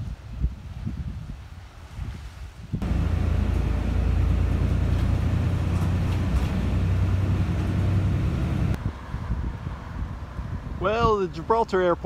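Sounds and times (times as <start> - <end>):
bus engine and road rumble: 2.8 - 10.8.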